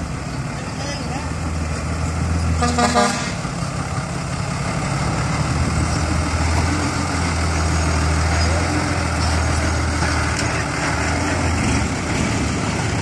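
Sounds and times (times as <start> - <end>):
diesel truck engine running: 0.0 - 13.0
pulsing horn toot: 2.6 - 3.4.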